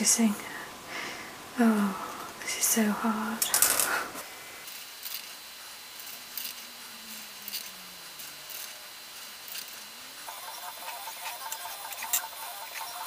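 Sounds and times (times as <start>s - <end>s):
pens scratching on paper: 6.0s - 13.0s.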